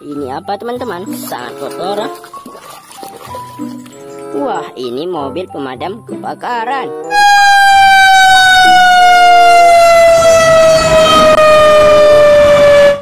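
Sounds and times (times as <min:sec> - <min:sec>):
fire truck siren falling tone: 0:07.0 - 0:13.0.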